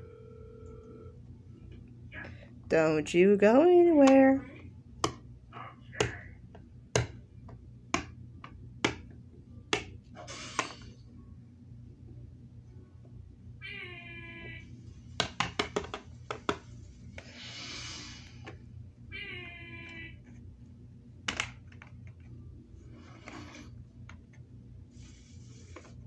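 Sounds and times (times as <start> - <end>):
short hissing noises: 17.2 - 18.4.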